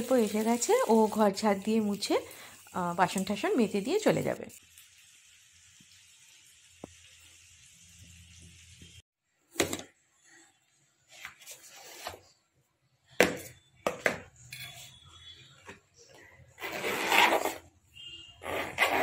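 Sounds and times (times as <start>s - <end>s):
food sizzling in hot oil: 0.0s - 9.1s.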